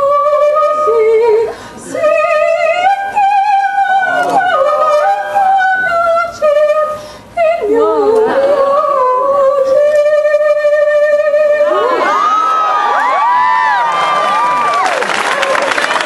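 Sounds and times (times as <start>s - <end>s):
high voice singing opera: 0.0s - 12.2s.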